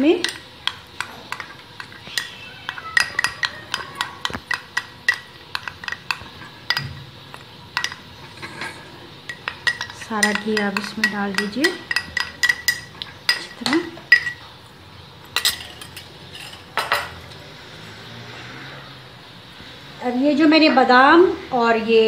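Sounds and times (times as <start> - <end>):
spoon clinking on glass and metal: 0.0 - 14.5, 15.2 - 18.0.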